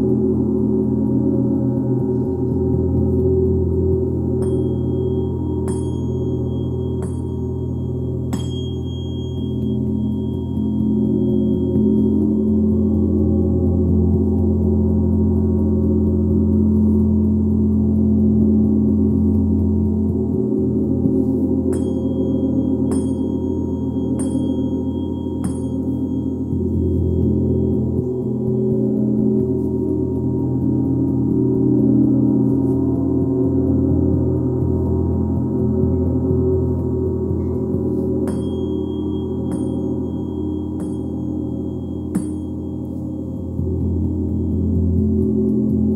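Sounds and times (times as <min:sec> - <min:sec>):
gong ringing: 0:04.3 - 0:13.3, 0:21.7 - 0:29.4, 0:35.8 - 0:45.4
light bright-ringing taps: 0:04.4 - 0:12.5, 0:21.7 - 0:28.3, 0:36.0 - 0:44.9.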